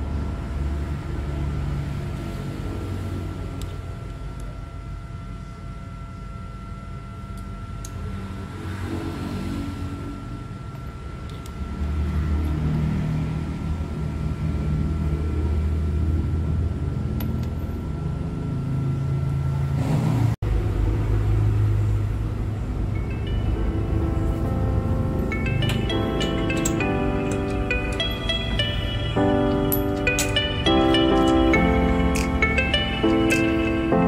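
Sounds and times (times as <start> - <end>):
background music with deep bass: 23.0 - 34.0.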